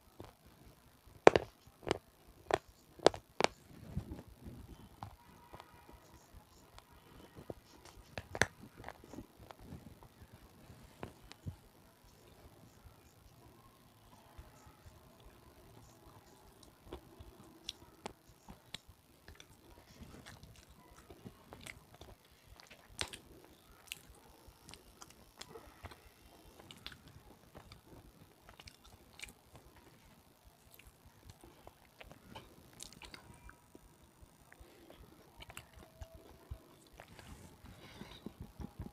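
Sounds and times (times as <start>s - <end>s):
chewing crunchy food: 16.6s - 33.9s, 34.5s - 38.9s.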